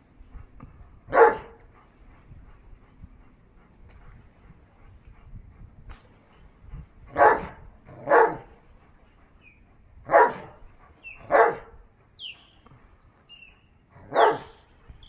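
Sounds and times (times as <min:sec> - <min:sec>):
dog barking: 0:01.1 - 0:01.6, 0:07.1 - 0:08.5, 0:10.1 - 0:10.6, 0:11.2 - 0:11.7, 0:14.0 - 0:14.6.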